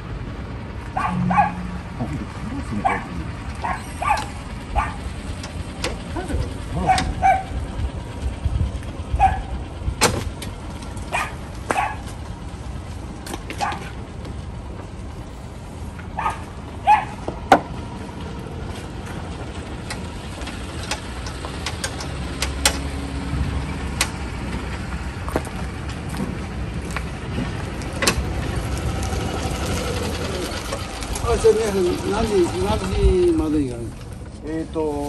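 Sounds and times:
low steady rumble: 0:00.0 - 0:35.0
dog barking: 0:00.9 - 0:01.8, 0:02.8 - 0:05.0, 0:06.8 - 0:07.6, 0:09.2 - 0:09.5, 0:11.1 - 0:12.1, 0:13.6 - 0:13.9, 0:16.2 - 0:17.2.

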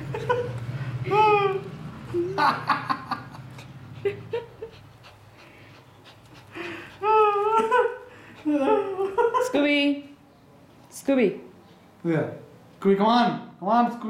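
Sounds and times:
dog panting: 0:03.0 - 0:09.7
dog whimpering: 0:06.6 - 0:09.5.

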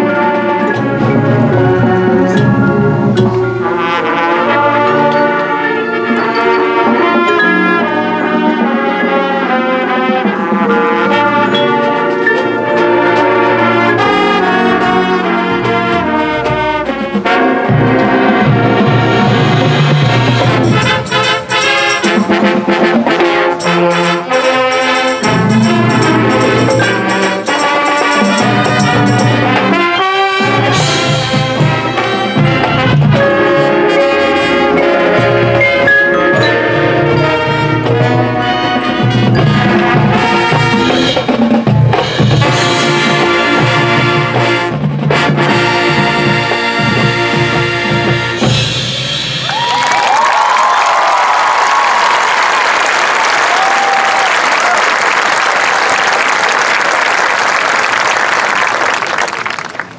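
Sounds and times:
marching band playing: 0:00.0 - 0:59.9
crashing cymbals: 0:48.5 - 0:49.8.

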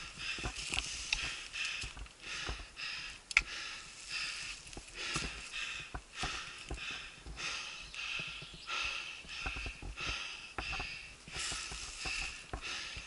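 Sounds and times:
bike tyres rolling on dirt: 0:00.0 - 0:13.0
bike clattering over bumps: 0:04.8 - 0:13.0.

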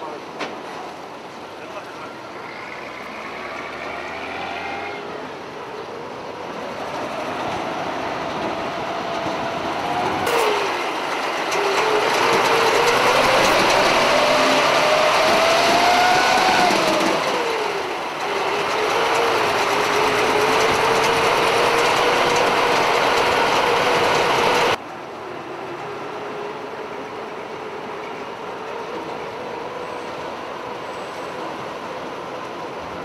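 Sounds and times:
drivetrain whine: 0:01.5 - 0:24.8
vehicle engine running: 0:09.3 - 0:24.8.

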